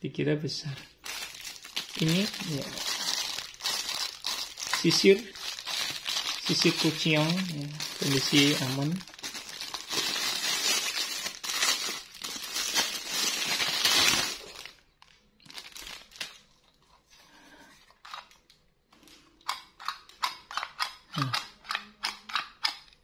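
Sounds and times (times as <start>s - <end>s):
plastic wrapping crinkling: 0.8s - 17.0s.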